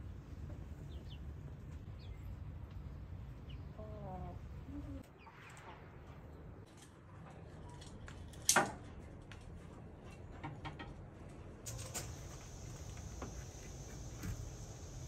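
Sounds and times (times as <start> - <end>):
steady outdoor hiss: 11.6 - 15.0.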